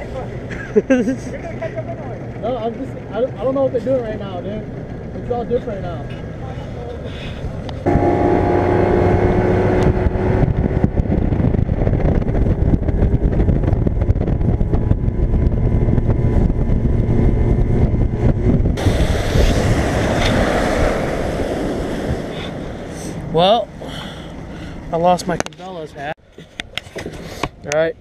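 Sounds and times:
wind on microphone: 7.3s - 23.5s
water spray hissing: 18.8s - 23.2s.

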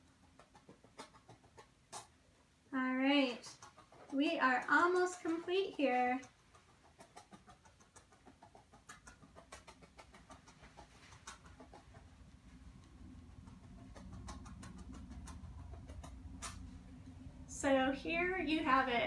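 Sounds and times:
low hum: 11.4s - 19.0s.

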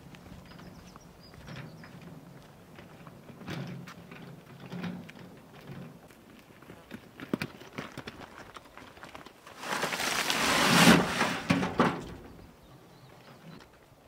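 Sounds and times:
footsteps: 9.4s - 12.0s
wheelbarrow knocks: 9.5s - 12.4s.

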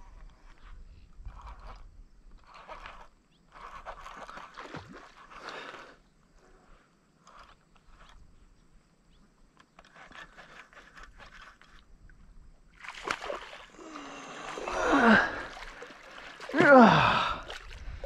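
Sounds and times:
fish splashing in water: 12.8s - 17.9s.

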